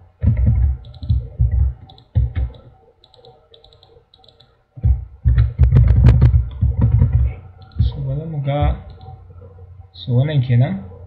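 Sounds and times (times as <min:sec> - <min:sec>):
dull low thumps: 0:00.2 - 0:02.6, 0:04.8 - 0:09.0
mouse clicks: 0:00.8 - 0:01.2, 0:01.8 - 0:04.5, 0:07.6 - 0:08.0
keyboard keystrokes: 0:00.8 - 0:04.5.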